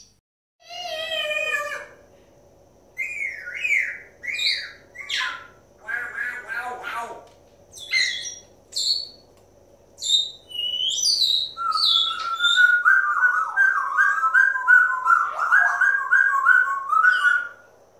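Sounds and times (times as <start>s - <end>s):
parrot warbling: 0.6s - 2.0s, 3.0s - 7.2s, 7.8s - 8.4s, 10.0s - 17.6s
parrots whistling and chirping: 3.0s - 7.0s, 7.7s - 9.3s, 10.0s - 17.7s.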